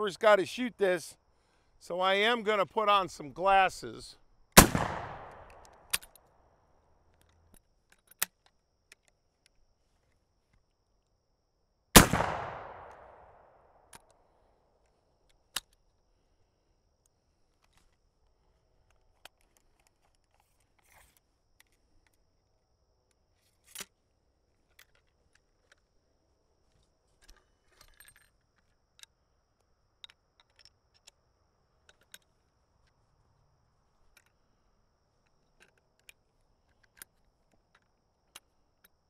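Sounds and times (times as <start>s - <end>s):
rifle handling clicks and taps: 4.8s - 6.3s, 7.1s - 9.6s, 27.2s - 31.2s, 35.2s - 39.0s.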